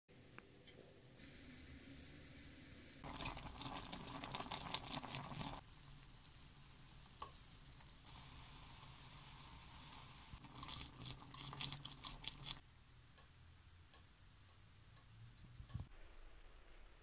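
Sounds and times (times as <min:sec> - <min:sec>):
potatoes simmering with hiss: 0:00.1 - 0:12.6
liquid crackling and popping: 0:02.8 - 0:12.6.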